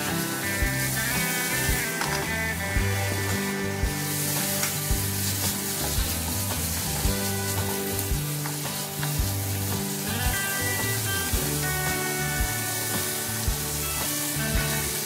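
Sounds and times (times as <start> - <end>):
background music with steady beat: 0.0 - 15.0
food sizzling in a frying pan: 0.0 - 15.0
wooden spatula stirring: 3.3 - 15.0.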